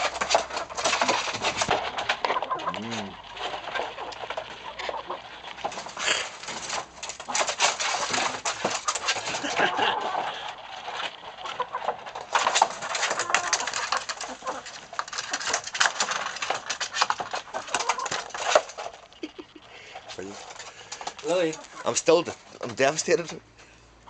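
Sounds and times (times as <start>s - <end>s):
chickens clucking: 0.0s - 24.0s.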